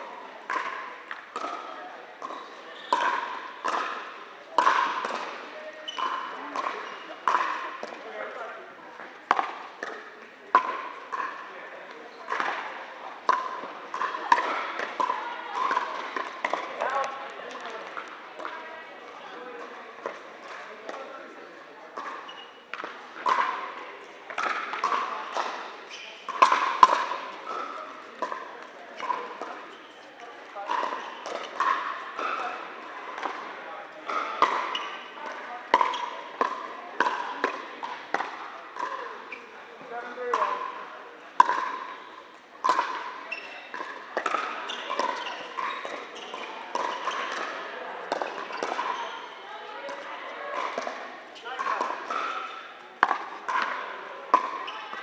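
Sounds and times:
paddles hitting plastic ball: 0.5s - 1.6s, 2.2s - 4.0s, 4.6s - 8.0s, 9.2s - 11.4s, 12.3s - 18.6s, 22.0s - 25.6s, 26.3s - 29.6s, 30.6s - 39.0s, 41.4s - 41.9s, 42.6s - 48.9s, 50.6s - 54.7s.

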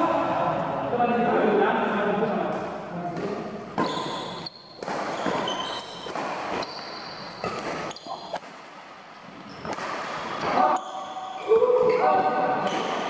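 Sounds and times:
rackets striking shuttlecock: 2.5s - 8.9s, 9.6s - 10.5s
sneakers squeaking on court: 3.8s - 8.4s, 9.3s - 11.4s.

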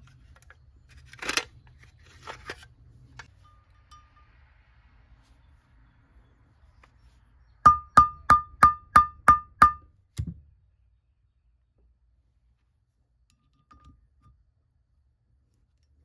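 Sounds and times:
ringing metal taps: 3.2s - 4.4s, 7.6s - 9.9s
dull metal knock: 7.7s - 10.4s.

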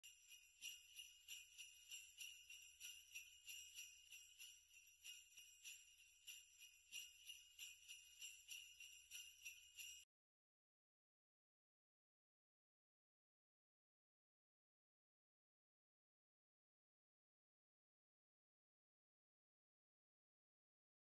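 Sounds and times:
jingle bells shaken: 0.0s - 10.1s.

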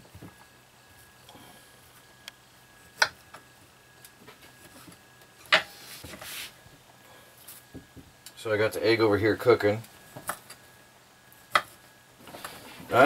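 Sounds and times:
short scraping rustle: 5.7s - 6.6s.

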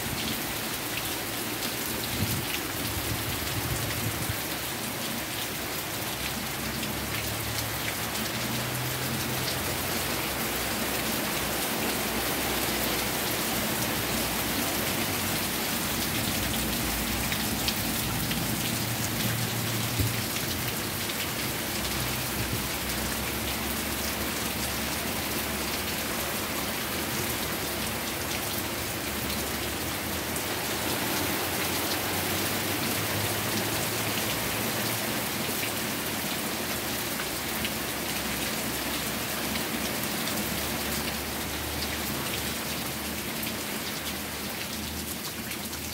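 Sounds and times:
steady rain hissing: 0.0s - 45.9s.

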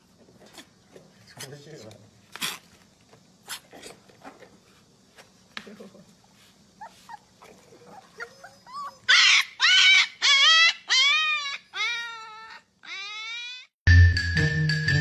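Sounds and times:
puppy yipping faintly: 6.8s - 13.6s
puppy howling: 7.4s - 13.7s.

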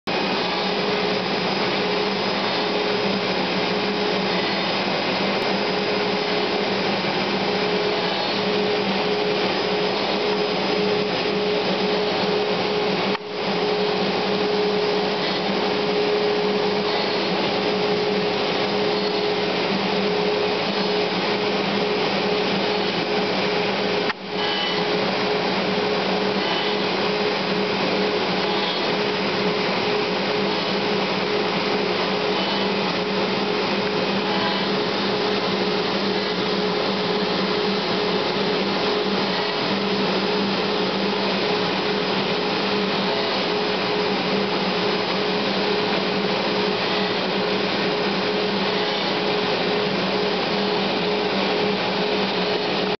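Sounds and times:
router spindle whine: 0.1s - 52.9s.

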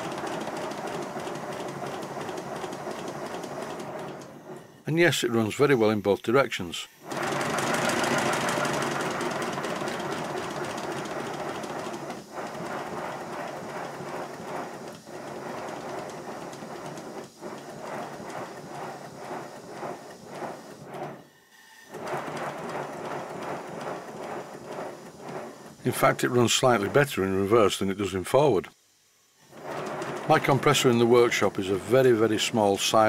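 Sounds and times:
model steam locomotive exhaust beats: 0.0s - 33.0s.

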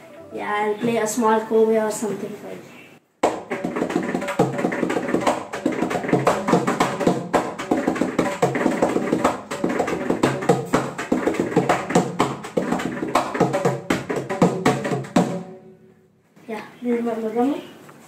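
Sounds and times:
hand drum played fast: 3.2s - 15.6s.

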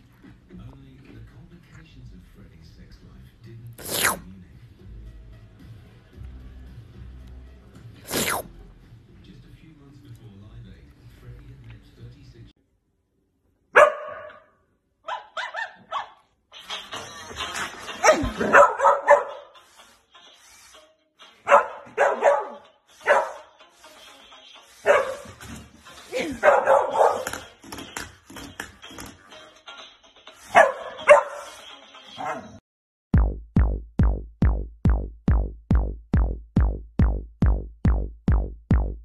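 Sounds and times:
dog barking: 13.7s - 16.3s, 18.0s - 19.5s, 21.4s - 23.5s, 24.8s - 25.4s, 26.2s - 27.4s, 30.5s - 31.5s, 32.2s - 32.6s
electronic music with deep bass drum: 33.1s - 39.0s.

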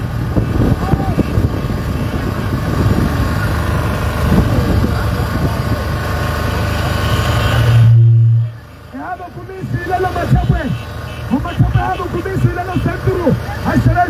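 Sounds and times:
motorcycle convoy engines: 0.0s - 14.0s
faint voices: 3.0s - 14.0s
low hum: 7.4s - 8.8s.

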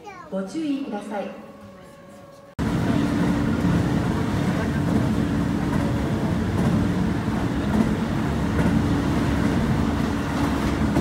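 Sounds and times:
train wheels on rail: 1.9s - 11.0s.

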